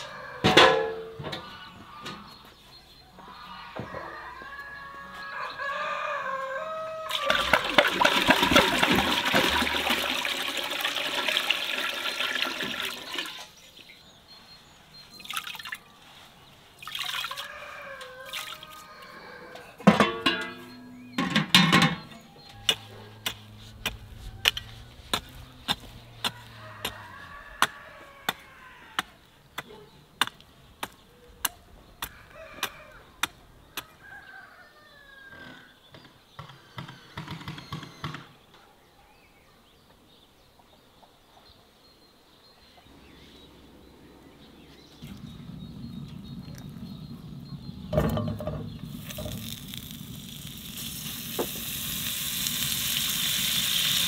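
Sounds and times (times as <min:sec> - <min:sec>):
splashes and clatters: 0:07.1 - 0:13.4, 0:16.8 - 0:17.5
water pouring into metal pot: 0:07.1 - 0:13.5, 0:16.8 - 0:17.5, 0:18.2 - 0:18.7, 0:48.9 - 0:54.0.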